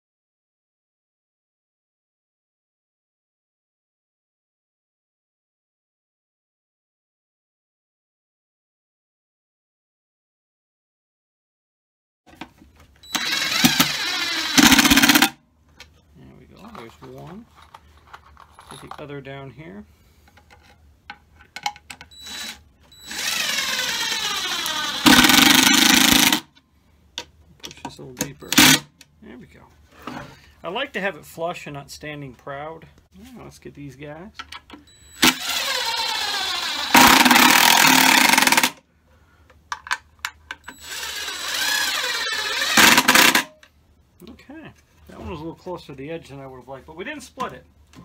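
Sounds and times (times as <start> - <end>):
cordless drill driving screw: 13.0 - 15.4, 22.1 - 26.5, 28.4 - 28.9, 35.1 - 38.8, 40.6 - 43.5.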